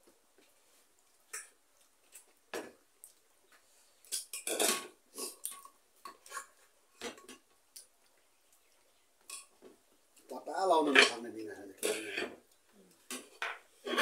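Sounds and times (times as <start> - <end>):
dishes clinking: 4.2 - 7.5
metal spoon scraping pot: 11.8 - 12.4, 13.8 - 14.0.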